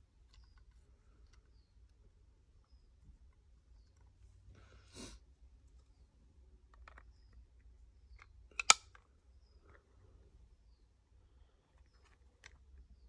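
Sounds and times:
card holder snapping shut: 0:08.6 - 0:08.8.

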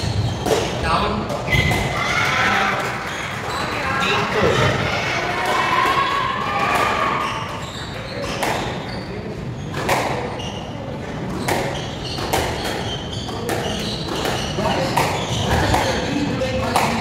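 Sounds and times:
shoes squeaking on wooden floor: 0:07.0 - 0:16.1
squash ball struck by rackets: 0:08.2 - 0:08.8, 0:09.7 - 0:10.4, 0:11.4 - 0:16.0, 0:16.6 - 0:17.0.

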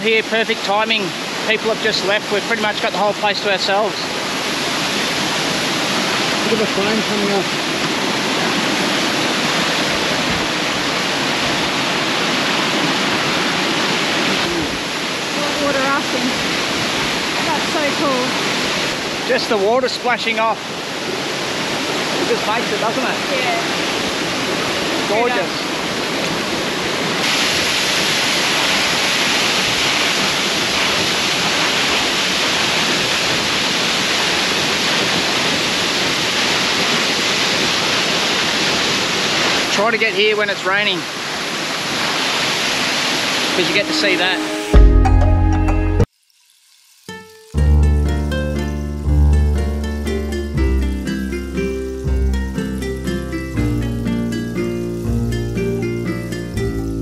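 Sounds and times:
waterfall splashing onto rocks: 0:00.0 - 0:44.5, 0:46.0 - 0:57.0.

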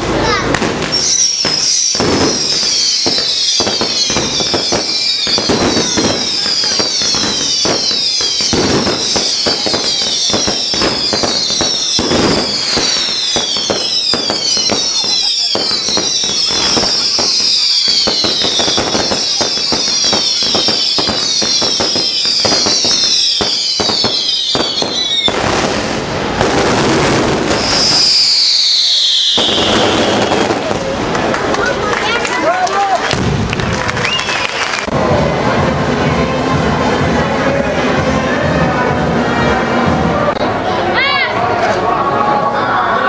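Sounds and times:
fireworks bangs: 0:00.0 - 0:37.2
fireworks crackling: 0:00.0 - 0:39.2
fireworks whistles falling in pitch: 0:00.6 - 0:30.9.

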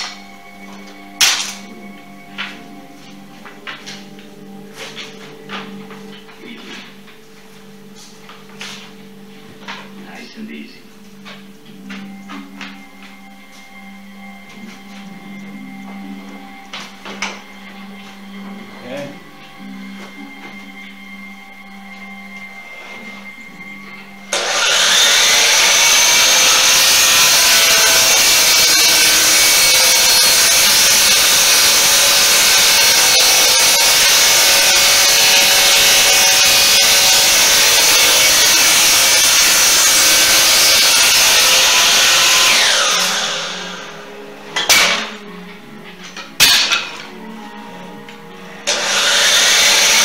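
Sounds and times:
miter saw cutting wood: 0:24.3 - 0:45.2, 0:48.6 - 0:50.0.

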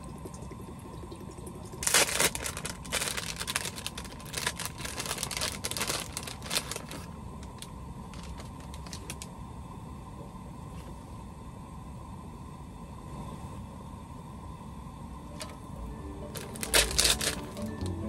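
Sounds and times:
plastic food packaging crinkling: 0:01.8 - 0:09.3, 0:16.3 - 0:18.0.

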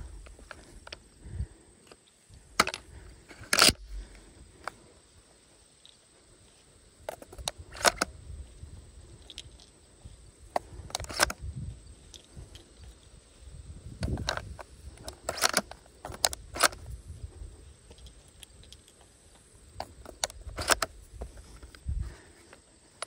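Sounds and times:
hands handling gun stock: 0:01.9 - 0:04.8, 0:07.1 - 0:08.1, 0:10.5 - 0:11.4, 0:14.0 - 0:16.9, 0:17.9 - 0:22.6
shotgun shells clicking into magazine: 0:02.6 - 0:04.8, 0:07.1 - 0:08.1, 0:09.1 - 0:09.7, 0:10.5 - 0:11.4, 0:14.0 - 0:16.9, 0:17.9 - 0:21.0.

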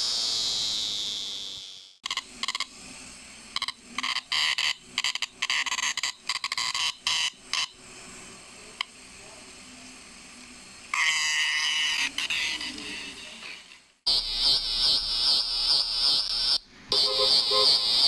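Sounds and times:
cicada buzzing: 0:00.0 - 0:07.8, 0:10.7 - 0:13.3, 0:14.1 - 0:18.0.

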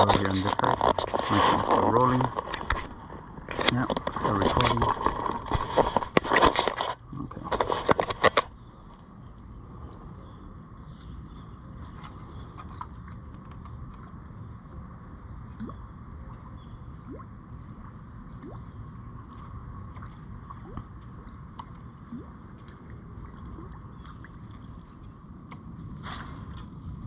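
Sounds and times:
water gurgling around kayak hull: 0:00.0 - 0:27.0
low rumble: 0:08.4 - 0:27.0.

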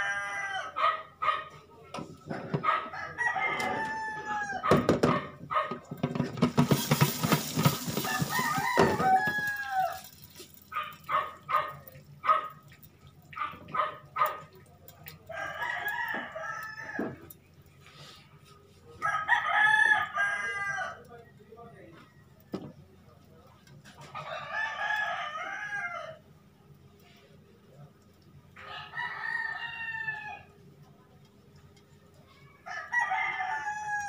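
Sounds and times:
rooster crowing: 0:00.0 - 0:01.0, 0:02.8 - 0:05.0, 0:07.9 - 0:10.2, 0:15.3 - 0:17.2, 0:19.0 - 0:21.0, 0:24.1 - 0:26.2, 0:28.6 - 0:30.5, 0:32.6 - 0:34.0.

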